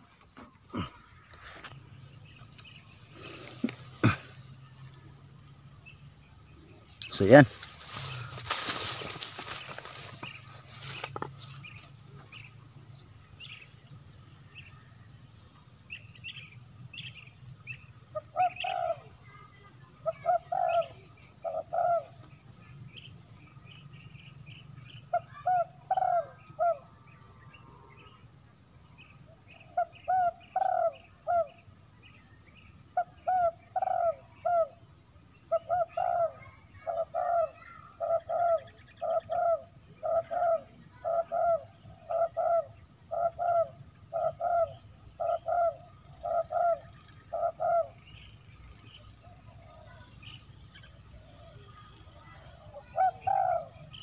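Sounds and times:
small birds chirping: 0.0 - 54.0
dove cooing: 18.1 - 22.4, 24.9 - 28.3, 29.5 - 31.6, 32.9 - 50.1, 50.9 - 54.0.

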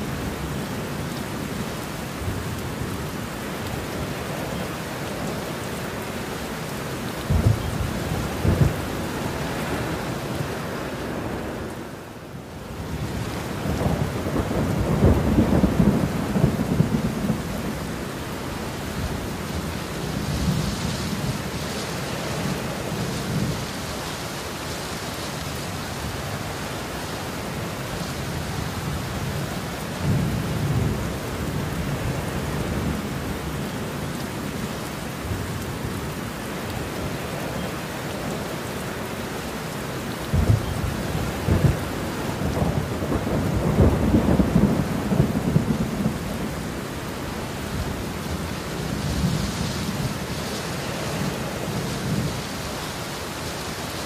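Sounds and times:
heavy rain falling: 0.0 - 54.0
thunder rumbling: 7.2 - 11.6, 12.9 - 18.1, 40.2 - 50.3.

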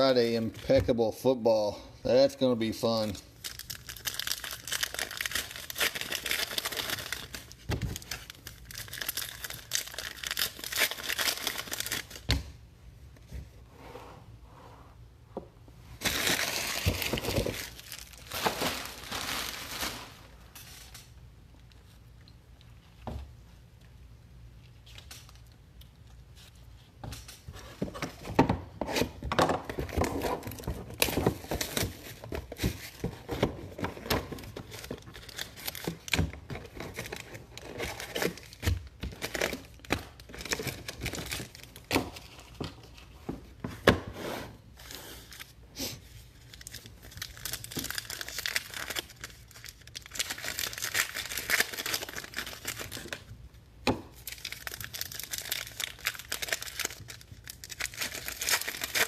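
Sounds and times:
foil packs crinkling and tearing: 3.0 - 12.3, 16.0 - 21.1, 29.8 - 42.6, 44.7 - 53.4, 54.2 - 59.0.

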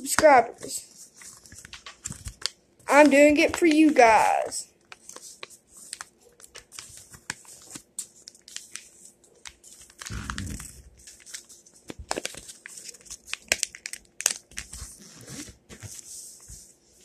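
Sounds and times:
paper crinkling and rustling: 0.1 - 17.0
dull rubbing noise: 10.1 - 10.9.

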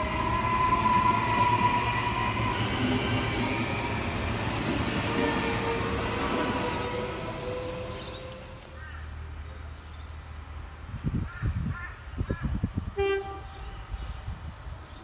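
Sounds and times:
train rumbling: 0.0 - 9.3
train horn chord: 13.0 - 13.8.

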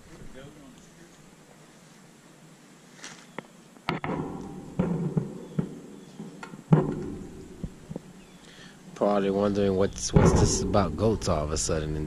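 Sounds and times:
sharp knocks and clanks: 3.9 - 8.0, 10.1 - 11.2.

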